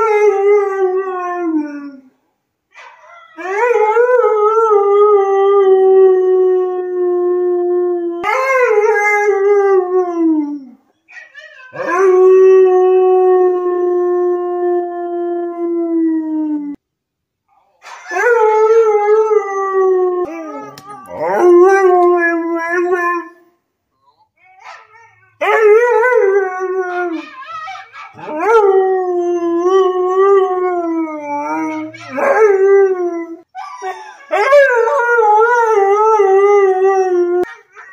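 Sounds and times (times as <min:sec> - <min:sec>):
dog howling: 0:18.2 - 0:23.3.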